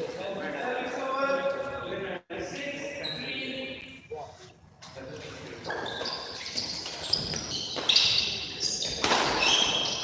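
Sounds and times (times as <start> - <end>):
shoes squeaking on court floor: 3.0 - 10.0
rackets hitting shuttlecock: 8.8 - 10.0.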